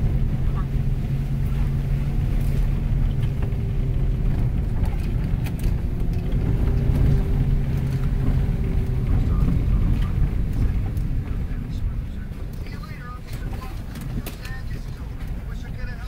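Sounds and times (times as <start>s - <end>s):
car engine and tyre hum: 0.0s - 16.0s.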